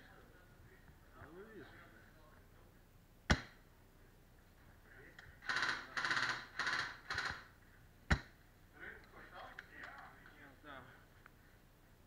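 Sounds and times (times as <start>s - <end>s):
airsoft rifle firing: 5.4s - 7.5s
rasping crackling bursts: 5.4s - 7.5s.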